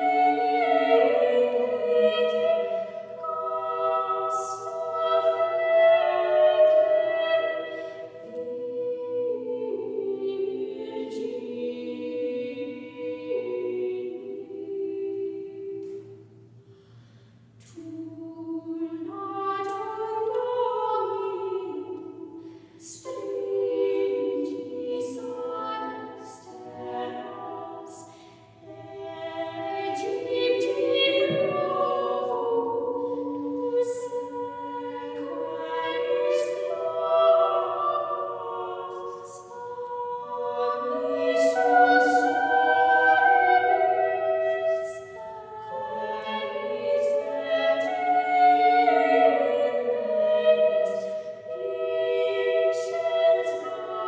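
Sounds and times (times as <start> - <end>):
unaccompanied female vocal ensemble: 0.0 - 54.0.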